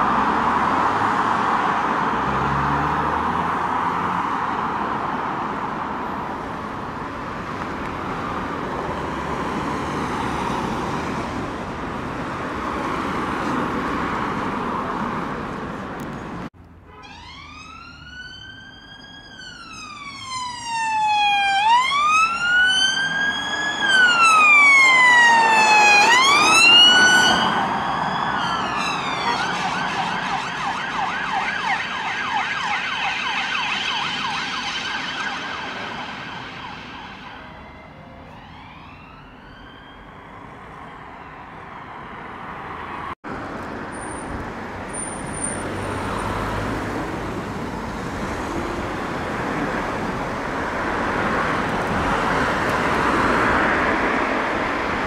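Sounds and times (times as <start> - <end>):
road traffic passing: 0.0 - 55.0
siren fast yelp: 17.0 - 41.4
police siren wailing: 17.0 - 42.4.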